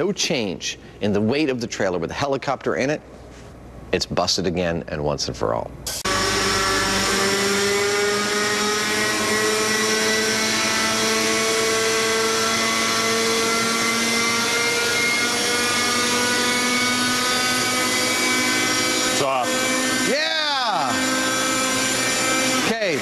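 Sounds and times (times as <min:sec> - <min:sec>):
model helicopter engine and rotor: 0:06.1 - 0:23.0.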